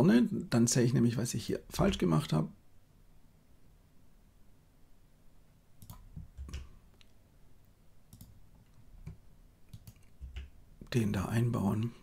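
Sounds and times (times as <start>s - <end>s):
keyboard and mouse clicks: 5.8s - 7.2s, 8.1s - 10.6s.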